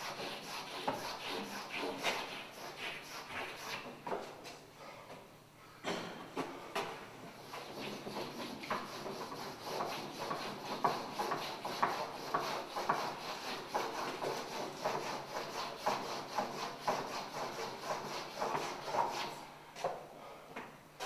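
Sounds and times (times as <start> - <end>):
chalk scraping on chalkboard: 0.0 - 4.0, 7.4 - 19.4.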